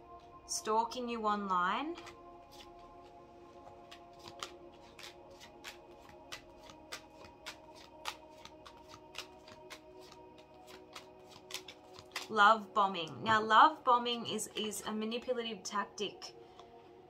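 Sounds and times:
quiet background music: 0.0s - 17.0s
cards snapping onto a table: 4.2s - 12.3s.

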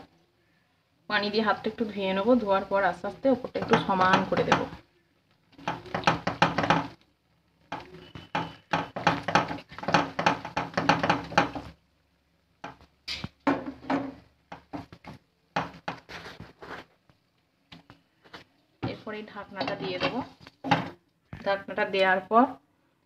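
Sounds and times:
hand patting batter in a pan: 3.4s - 4.8s, 5.4s - 7.0s, 7.7s - 11.8s, 12.6s - 19.0s.

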